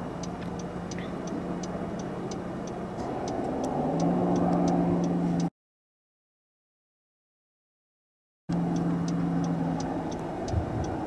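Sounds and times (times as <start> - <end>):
car engine and road noise: 0.0 - 5.5, 8.5 - 11.0
car indicator ticking: 0.0 - 5.5, 8.5 - 11.0.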